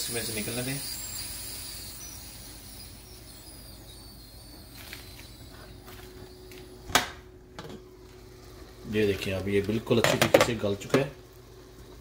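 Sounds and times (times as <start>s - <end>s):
steam hissing from pressure cooker: 0.0s - 7.2s, 8.0s - 12.0s.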